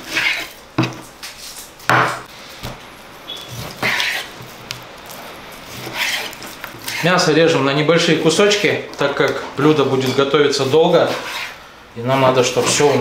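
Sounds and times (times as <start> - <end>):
knife slicing meat: 3.5 - 4.5, 5.6 - 7.2.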